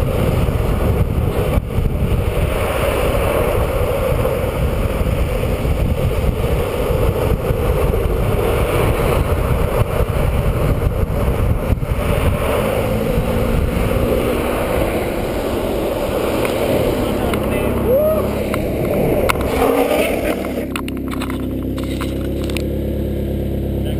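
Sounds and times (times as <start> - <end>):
wind buffeting microphone: 0.0 - 22.8
longboard wheels rolling on asphalt: 0.0 - 23.9.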